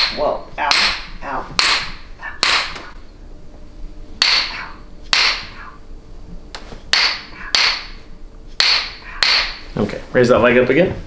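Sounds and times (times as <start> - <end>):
hammer tapping metal tool: 4.2 - 5.5, 6.9 - 8.0, 8.6 - 9.6.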